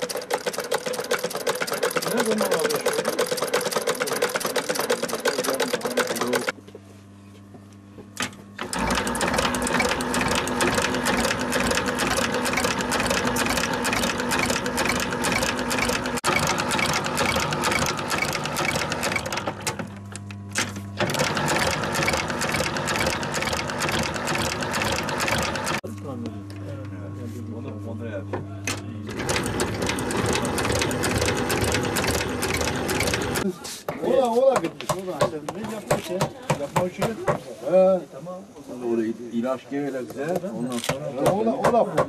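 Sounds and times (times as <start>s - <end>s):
sewing machine stitching: 0.0s - 6.5s, 8.6s - 19.9s, 21.0s - 25.8s, 29.1s - 33.4s
electric motor hum: 4.3s - 33.5s.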